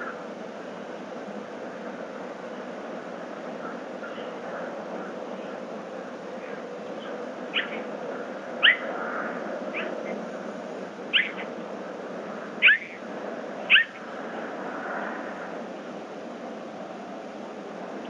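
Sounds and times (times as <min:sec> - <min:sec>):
bobcat high chirps: 0:08.6 - 0:08.9, 0:11.2 - 0:11.4, 0:13.7 - 0:14.0.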